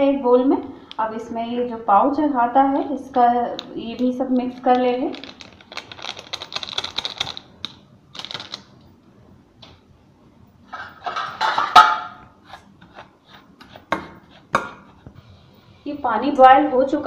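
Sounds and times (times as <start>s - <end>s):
plastic sachet crackling: 3.5s - 8.8s.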